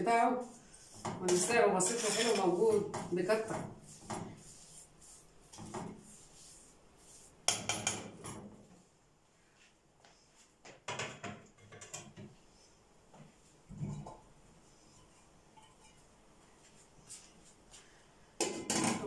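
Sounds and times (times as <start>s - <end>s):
utensils and dishes clattering: 1.3s - 3.0s, 18.4s - 19.0s.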